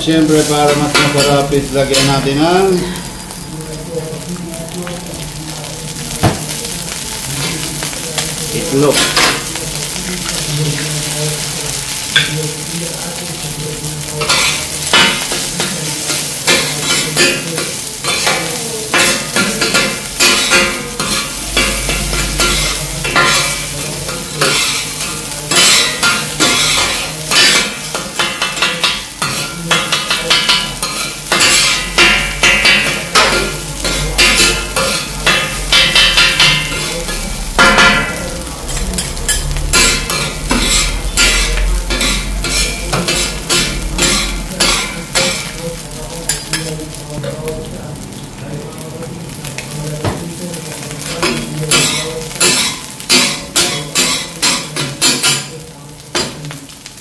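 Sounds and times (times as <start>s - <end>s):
rice and egg sizzling: 0.0s - 57.0s
spatulas clattering on steel: 0.4s - 2.6s, 14.2s - 45.5s, 51.0s - 55.5s
metal spatulas scraping: 18.9s - 45.4s.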